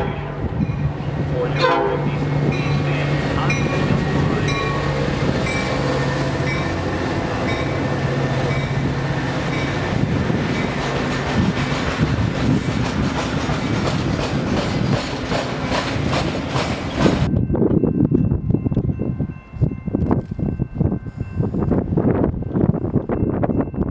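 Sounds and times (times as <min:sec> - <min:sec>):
diesel locomotive engine droning: 0:00.0 - 0:23.9
train wheels clickety-clack: 0:09.5 - 0:17.4.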